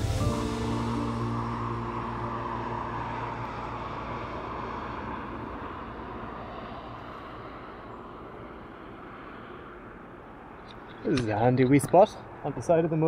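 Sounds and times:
engine hum: 0.0s - 11.6s
tyre and road noise: 0.0s - 13.0s.

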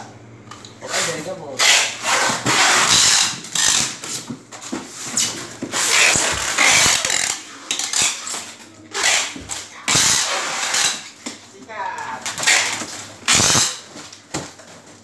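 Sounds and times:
styrofoam rasping rubs: 0.9s - 3.8s, 5.0s - 8.3s, 9.0s - 11.0s.

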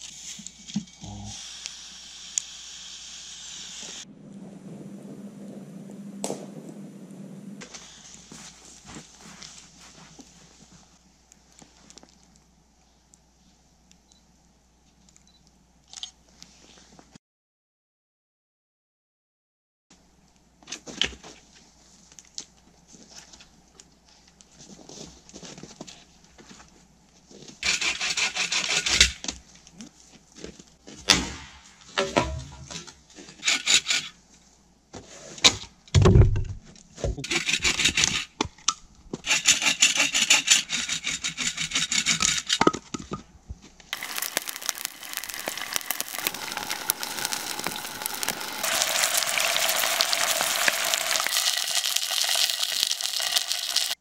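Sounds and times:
steady hiss: 0.0s - 4.1s, 44.0s - 51.8s
hand saw cutting wood: 27.6s - 29.2s, 33.3s - 34.2s, 37.2s - 38.4s, 39.2s - 42.6s.

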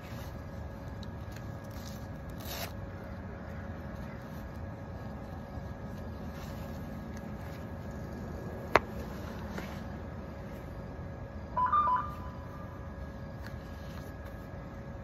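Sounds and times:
train platform hum: 4.6s - 15.0s
two-tone electronic beeps: 11.6s - 12.7s.

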